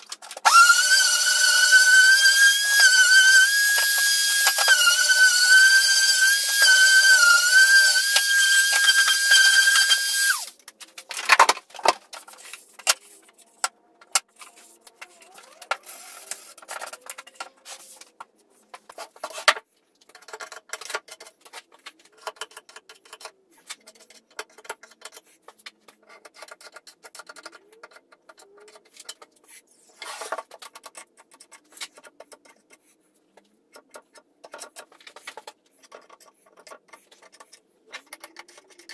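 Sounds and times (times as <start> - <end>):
power tool motor whining: 0.4 - 10.5
wooden pieces knocking and clicking: 10.5 - 29.4, 33.4 - 38.9.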